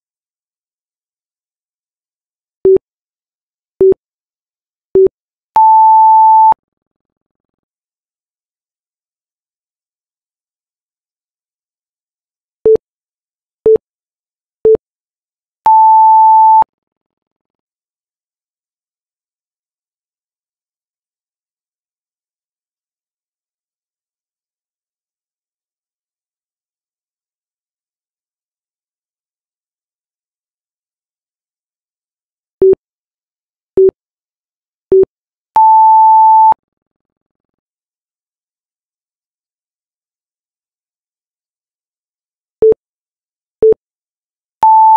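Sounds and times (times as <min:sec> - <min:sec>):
short low timer beeps: 0:44.6 - 0:44.9.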